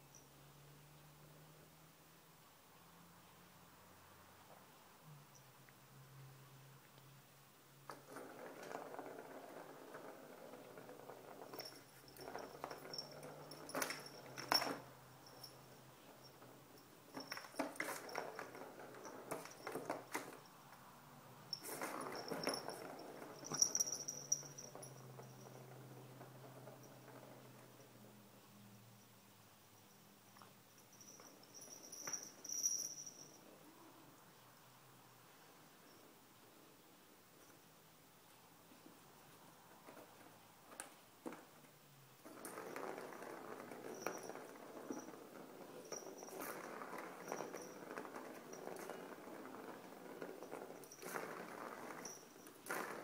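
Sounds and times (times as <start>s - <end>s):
plastic ball rolling in toy track: 7.9s - 20.5s, 21.5s - 27.8s, 42.2s - 53.0s.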